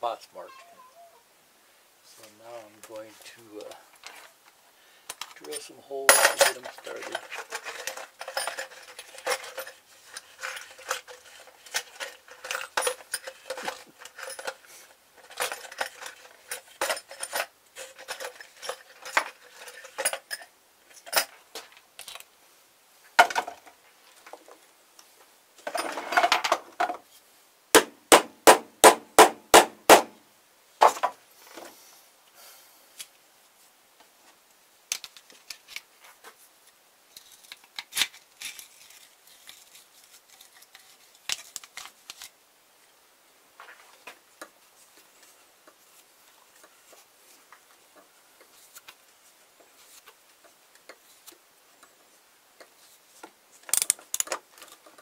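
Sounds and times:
metal tools clinking and rattling: 0:05.4 - 0:21.4, 0:53.7 - 0:55.0
sharp knocks: 0:27.8 - 0:30.2.

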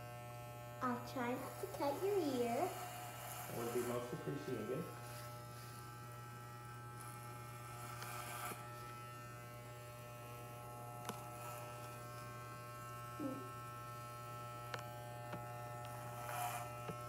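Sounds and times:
electric hair clippers buzzing: 0:00.0 - 0:17.0.

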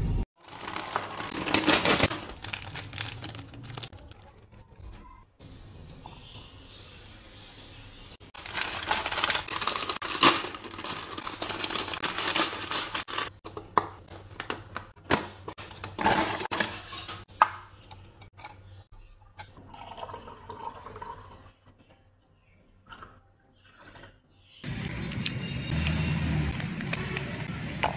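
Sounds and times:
plastic packet crinkling and tearing: 0:00.4 - 0:04.4, 0:08.3 - 0:13.4
juice pouring into a glass: 0:19.7 - 0:21.3.

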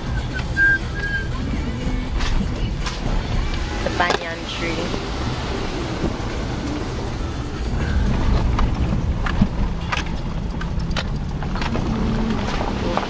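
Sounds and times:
car engine and tyre rumble: 0:00.0 - 0:13.0
light clicks and rattles: 0:07.8 - 0:13.0.

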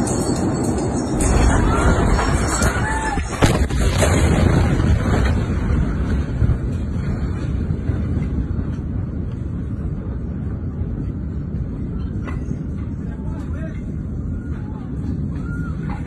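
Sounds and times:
wind buffeting microphone: 0:00.0 - 0:16.0
deep explosion rumble: 0:01.1 - 0:16.0
explosion crack: 0:01.2 - 0:08.6.

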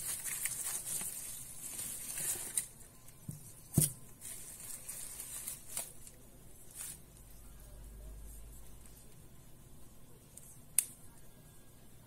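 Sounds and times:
bubble wrap crinkling: 0:00.0 - 0:07.4.

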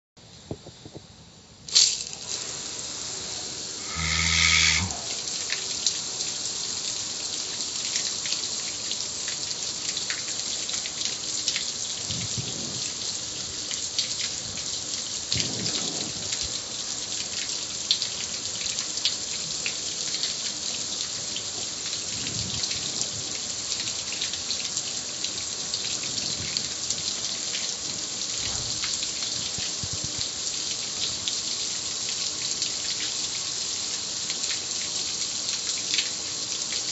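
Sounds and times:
water drips and splashes: 0:01.7 - 0:03.1, 0:03.9 - 0:36.9
hose spray on metal grill: 0:01.7 - 0:04.9, 0:12.3 - 0:12.8, 0:15.4 - 0:16.4.

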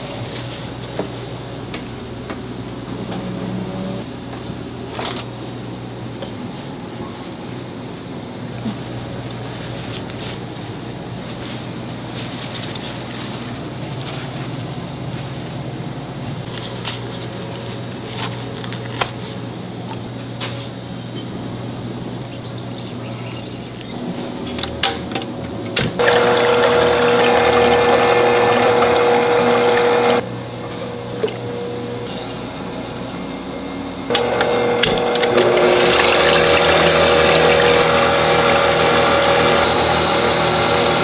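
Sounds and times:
stand mixer motor whining: 0:26.0 - 0:30.2, 0:34.1 - 0:41.0
liquid pouring into bowl: 0:34.2 - 0:39.2.

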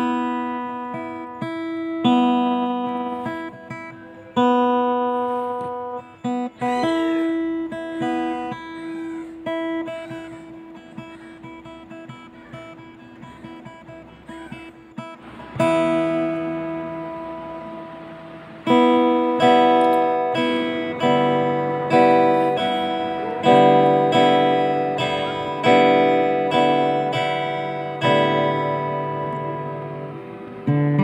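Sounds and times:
guitar strumming slow chords: 0:00.0 - 0:31.0.

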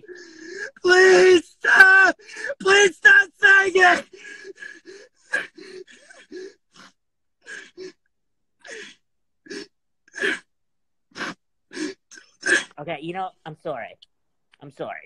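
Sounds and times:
gasping breaths: 0:00.0 - 0:00.8, 0:04.1 - 0:10.5, 0:11.1 - 0:12.7
man sobbing: 0:00.0 - 0:10.5.

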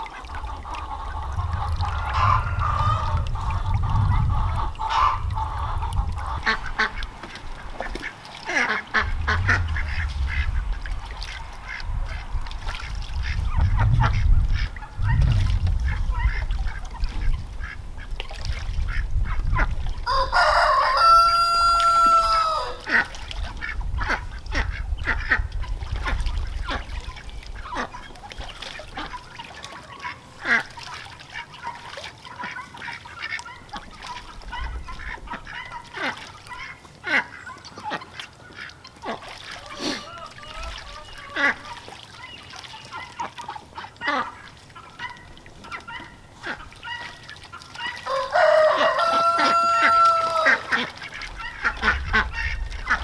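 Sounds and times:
ducks quacking: 0:00.0 - 0:53.0
water splashing: 0:00.0 - 0:53.0
rooster crowing: 0:20.1 - 0:22.8, 0:48.0 - 0:50.7.

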